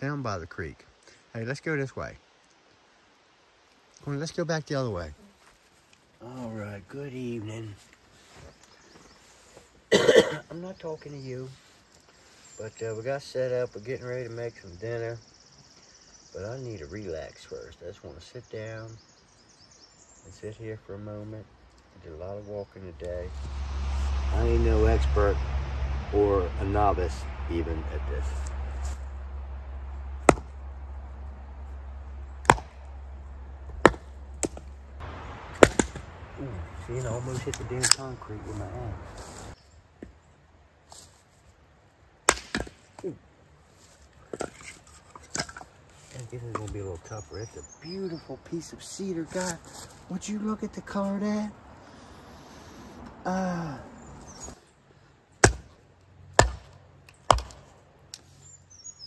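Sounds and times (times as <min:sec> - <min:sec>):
axe chopping wood: 0:30.2 - 0:30.6, 0:32.4 - 0:33.0, 0:33.7 - 0:34.8, 0:35.5 - 0:36.1, 0:42.2 - 0:42.9, 0:55.4 - 0:57.7.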